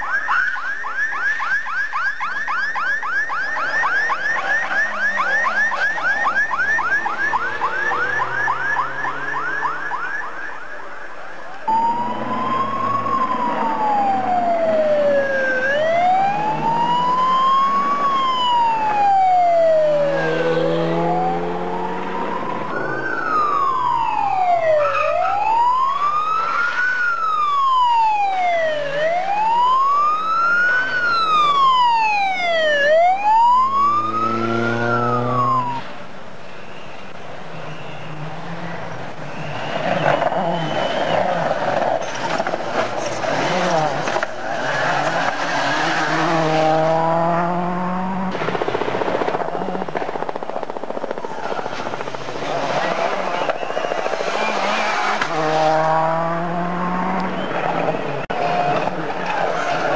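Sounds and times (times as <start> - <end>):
siren yelping and wailing: 0.0 - 36.0.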